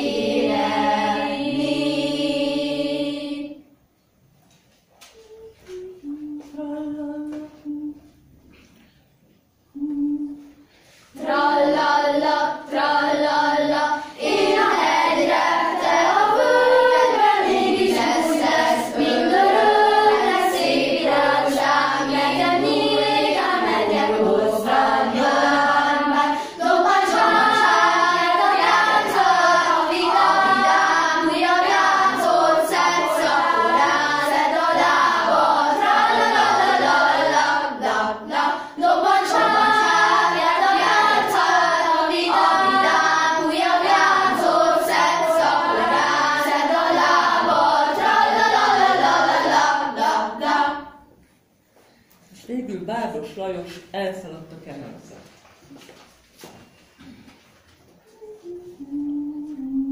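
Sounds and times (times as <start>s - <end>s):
children's choir singing: 0.0s - 4.0s, 9.7s - 51.5s, 57.9s - 59.9s.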